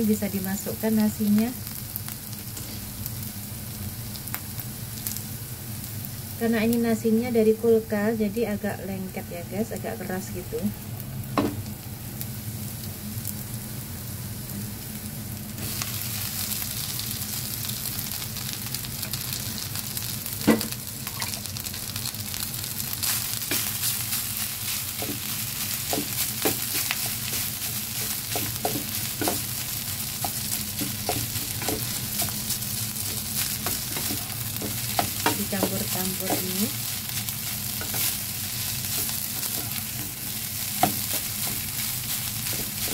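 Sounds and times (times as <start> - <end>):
rice sizzling in hot oil: 0.0 - 42.9
spatula scraping and tapping pan: 25.0 - 29.6, 30.2 - 36.6.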